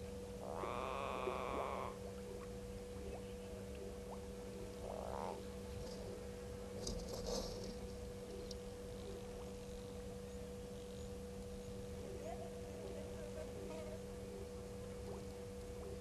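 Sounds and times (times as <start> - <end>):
steady low hum: 0.0 - 16.0
animal call: 0.4 - 2.5, 4.6 - 5.4.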